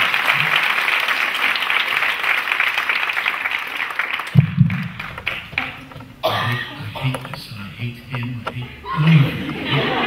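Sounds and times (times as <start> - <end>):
audience applauding: 0.0 - 6.6
low thump: 4.4 - 6.1.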